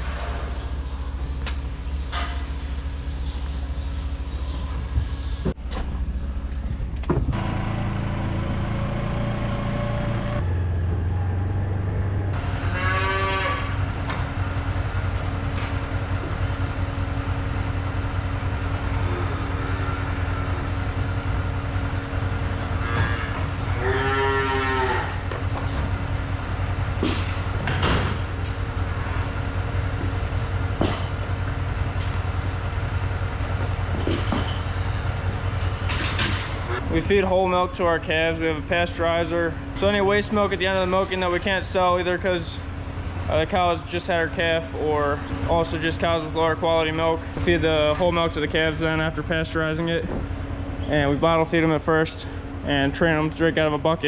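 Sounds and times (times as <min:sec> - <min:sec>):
low mechanical hum: 0:00.0 - 0:54.0
metal clanks: 0:33.9 - 0:36.8.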